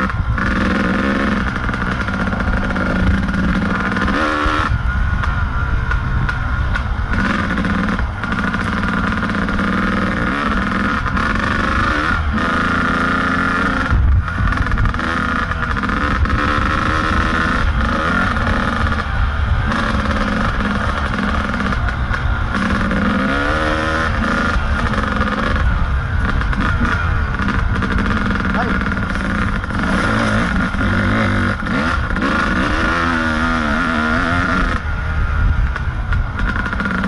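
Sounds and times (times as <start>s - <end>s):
two-stroke motorcycle engine revving: 0.0s - 37.0s.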